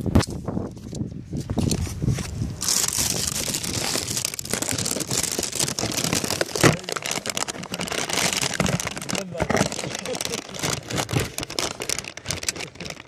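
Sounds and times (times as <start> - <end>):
phone microphone handling rustle: 0.0 - 13.0.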